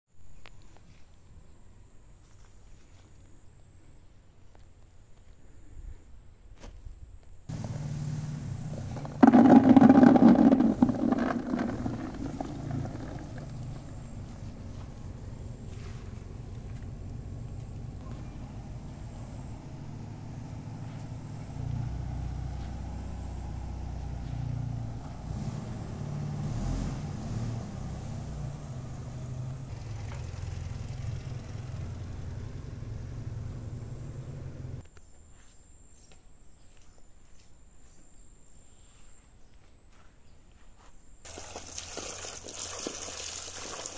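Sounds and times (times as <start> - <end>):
loud uneven low rumble: 7.5 - 26.2
berries drumming into plastic bucket: 8.6 - 14.0
steady low hum: 10.6 - 25.2.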